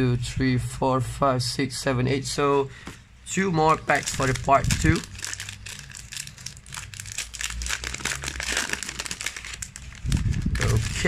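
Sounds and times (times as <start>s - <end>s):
foil wrapper crinkling: 3.7s - 11.0s.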